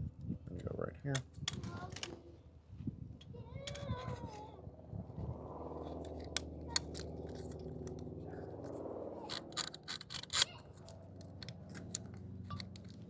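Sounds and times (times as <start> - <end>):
steady low hum: 4.4 - 13.0.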